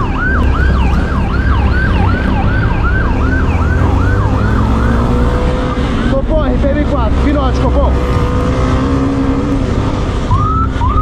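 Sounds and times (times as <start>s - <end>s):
police siren yelping: 0.0s - 6.3s, 10.3s - 11.0s.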